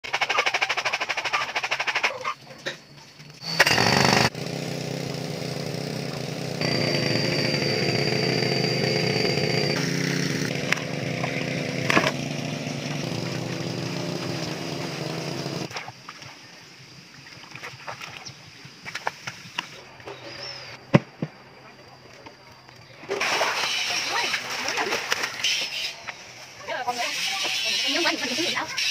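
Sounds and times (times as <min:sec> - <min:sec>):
small petrol engine running: 0:03.4 - 0:15.7.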